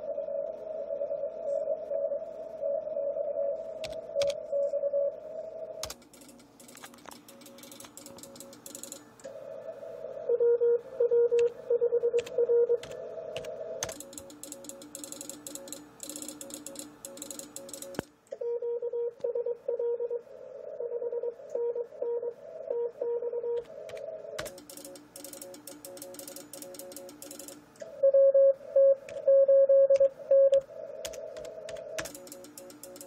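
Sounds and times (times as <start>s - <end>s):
faint lower morse signals: 0.0s - 33.0s
computer keyboard clicks: 3.8s - 4.4s, 5.8s - 9.1s, 12.2s - 18.1s, 23.6s - 27.6s, 30.0s - 33.0s
morse code beeping: 10.3s - 13.0s, 24.4s - 30.6s.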